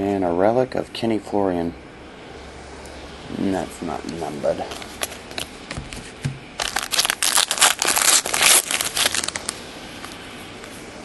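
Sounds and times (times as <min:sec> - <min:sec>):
foil wrapper crinkling: 0:04.6 - 0:09.6.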